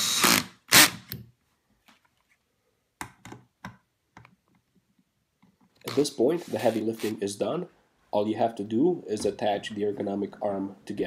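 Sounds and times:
cordless drill burst: 0.0 - 1.0.

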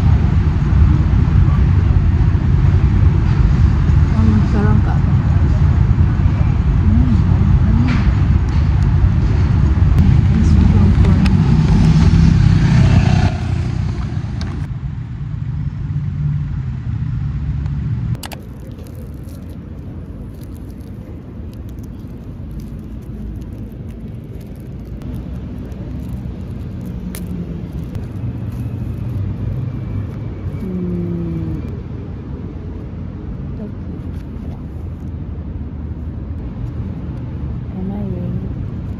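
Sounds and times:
city street traffic rumble: 0.0 - 38.9
cellophane wrap crinkling: 18.2 - 30.8.

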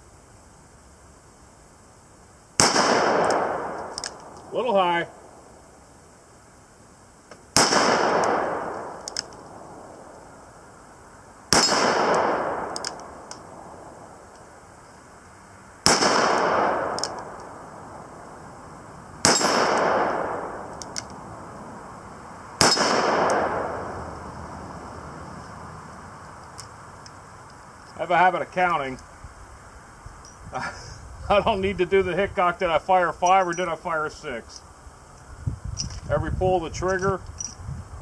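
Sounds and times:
revolver shots echoing: 11.5 - 13.2, 15.8 - 17.5, 19.2 - 21.0, 22.6 - 24.1.

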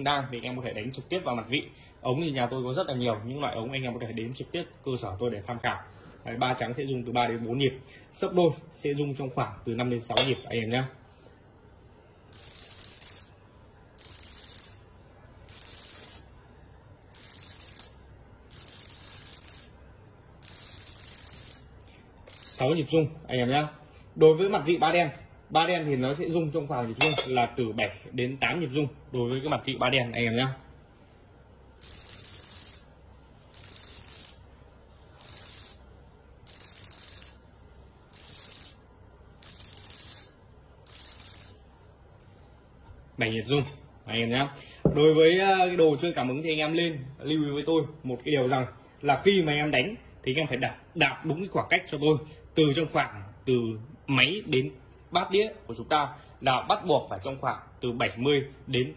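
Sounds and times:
vibration motor buzzing and rattling: 12.4 - 13.3, 14.0 - 14.8, 15.5 - 16.2, 17.2 - 19.7, 20.4 - 21.7, 22.3 - 22.6, 31.8 - 32.9, 33.6 - 34.4, 35.2 - 35.8, 36.4 - 37.4, 38.2 - 38.8, 39.4 - 40.3, 40.9 - 41.6.

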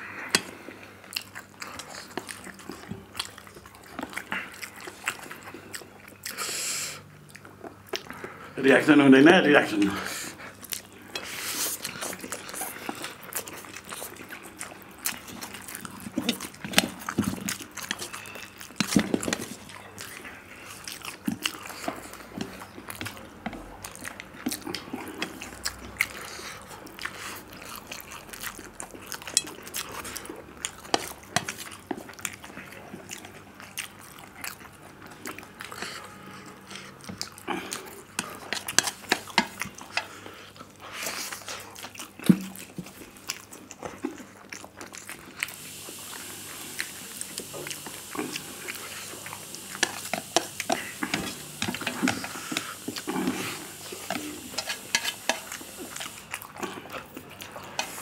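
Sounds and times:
slurping and chewing noodles: 0.0 - 8.8, 9.5 - 58.0.

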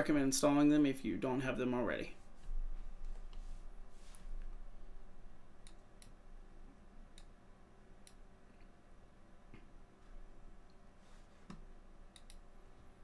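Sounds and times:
low steady hum: 0.0 - 13.0
computer mouse clicks: 5.6 - 6.2, 8.0 - 8.7, 11.4 - 12.5.

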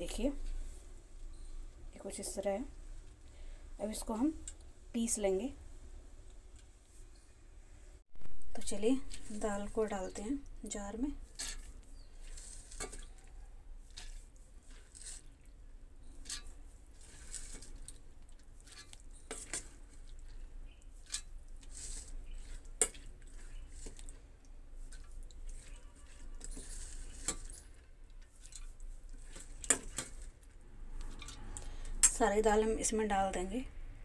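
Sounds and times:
wet lentils pattering into jar: 8.3 - 32.2.

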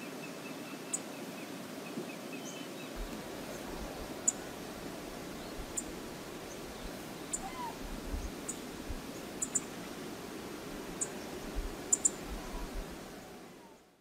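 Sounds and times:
river water flowing: 0.0 - 13.6
faint chirp: 5.2 - 8.7, 9.4 - 9.7, 11.0 - 12.9.

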